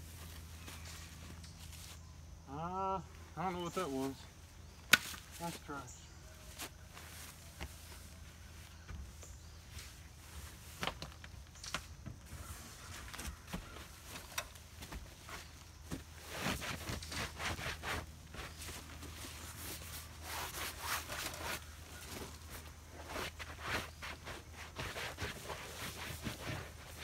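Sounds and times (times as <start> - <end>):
footsteps scuffing: 6.4 - 27.0
protective coverall rustling: 12.3 - 27.0.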